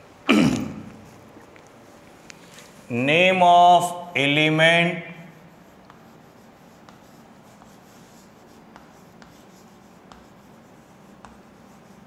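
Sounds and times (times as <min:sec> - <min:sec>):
chalk scratching on chalkboard: 0:04.2 - 0:12.0
chalk tapping on chalkboard: 0:05.2 - 0:12.0.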